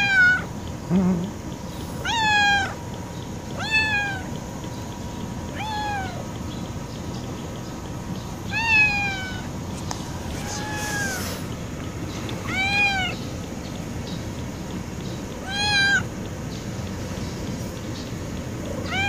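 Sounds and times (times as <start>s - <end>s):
cat meowing: 0.0s - 0.5s, 2.0s - 2.8s, 3.6s - 4.4s, 5.5s - 6.3s, 8.5s - 9.6s, 10.3s - 11.4s, 12.4s - 13.2s, 15.4s - 16.1s.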